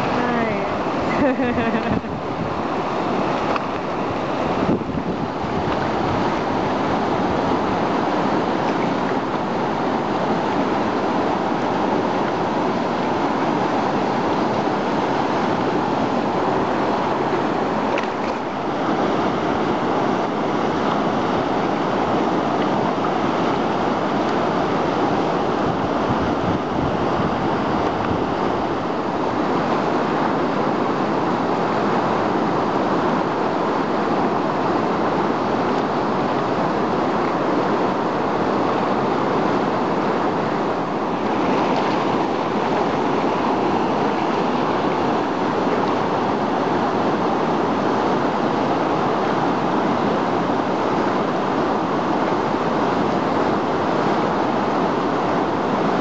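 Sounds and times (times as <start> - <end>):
whitewater rapid roaring: 0.0 - 56.0.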